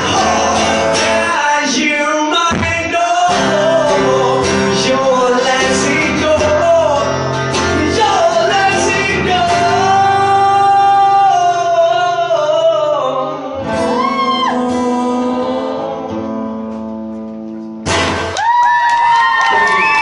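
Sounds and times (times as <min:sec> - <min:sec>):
man singing: 0:00.0 - 0:16.8
strummed acoustic guitar: 0:00.0 - 0:18.4
audience cheering: 0:18.2 - 0:20.0.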